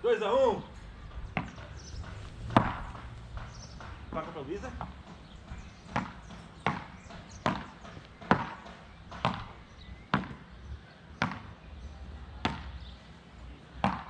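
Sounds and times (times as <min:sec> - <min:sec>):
paddles hitting ball: 0:01.4 - 0:10.4.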